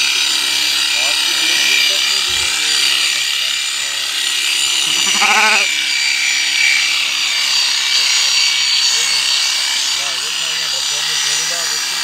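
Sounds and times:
electric shears whining: 0:00.0 - 0:12.0
sheep bleating: 0:04.7 - 0:05.8.

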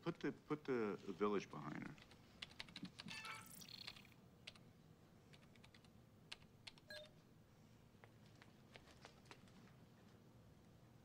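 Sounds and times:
computer keys typing: 0:02.0 - 0:04.6, 0:05.3 - 0:07.2.

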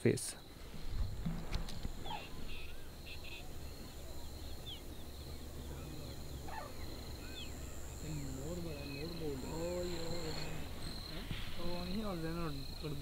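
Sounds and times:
high-pitched insect trill: 0:00.4 - 0:13.0
birds chirping and whistling: 0:01.8 - 0:12.2.

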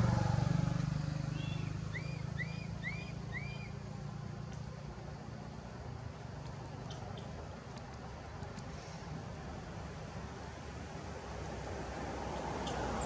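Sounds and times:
passing vehicle engine rumble: 0:00.0 - 0:13.0
high chirps: 0:01.3 - 0:03.8.

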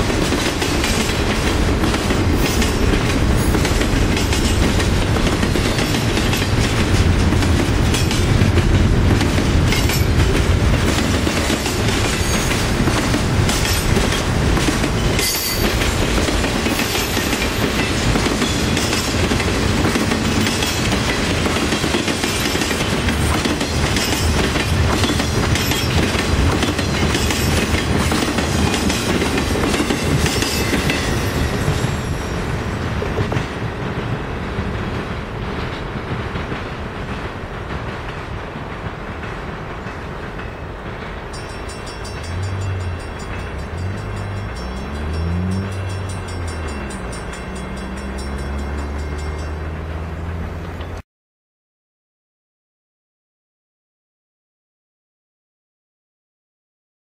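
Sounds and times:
freight cars rumbling: 0:00.0 - 0:51.0
wheels clacking over rail joints: 0:00.0 - 0:51.0.

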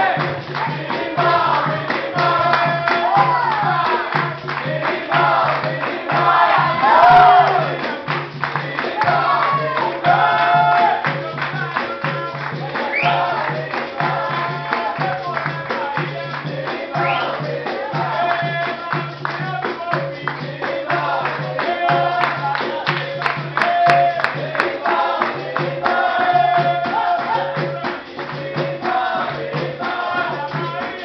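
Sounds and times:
group singing: 0:00.0 - 0:31.0
hand clapping: 0:00.0 - 0:31.0
hand drum: 0:00.0 - 0:31.0
tambourine: 0:10.1 - 0:31.0.

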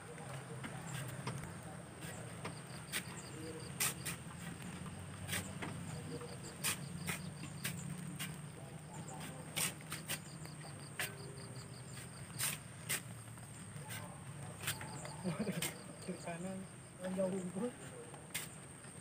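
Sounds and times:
insects trilling: 0:02.0 - 0:19.0
shovels scraping wet sand: 0:03.7 - 0:04.2, 0:05.2 - 0:05.6, 0:06.5 - 0:08.4, 0:09.2 - 0:10.3, 0:12.0 - 0:13.1, 0:18.3 - 0:18.6.

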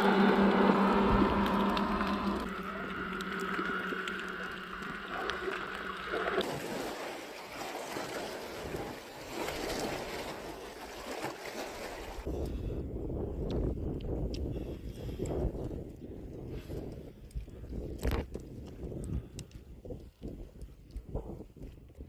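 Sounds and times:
dense wash of noise: 0:00.0 - 0:06.6
steady hum: 0:00.0 - 0:06.6
sea water rushing: 0:00.0 - 0:12.3
wind noise on microphone: 0:12.2 - 0:22.0.

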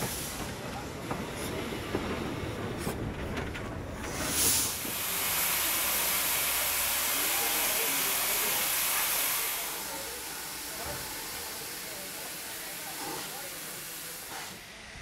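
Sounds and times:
steam locomotive rumble: 0:00.0 - 0:15.0
steam hissing: 0:04.1 - 0:15.0.

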